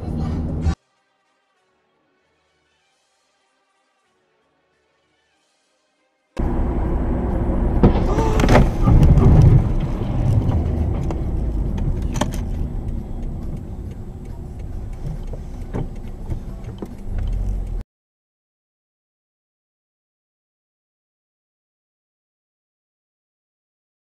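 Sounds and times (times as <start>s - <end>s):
road and engine rumble: 0.0s - 0.8s, 6.4s - 17.8s
sharp clicks or knocks: 7.8s - 13.7s.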